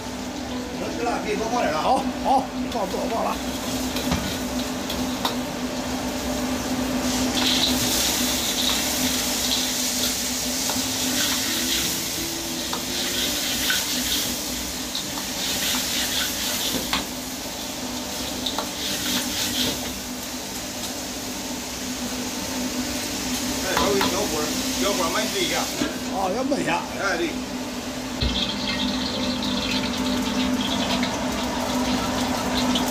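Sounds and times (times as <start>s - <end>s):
oil sizzling in a wok: 0.0s - 32.9s
ladle scraping a wok: 12.7s - 14.4s.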